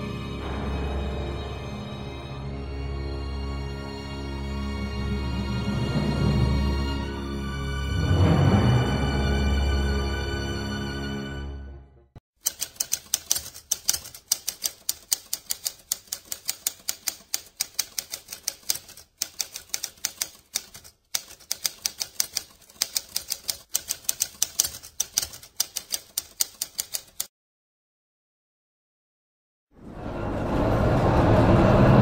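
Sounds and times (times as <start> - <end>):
typewriter keys clacking: 12.4 - 27.3.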